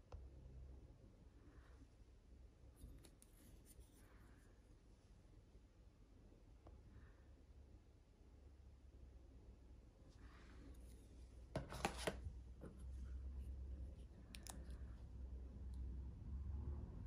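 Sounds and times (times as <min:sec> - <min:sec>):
faint low rumble: 0:12.3 - 0:17.0.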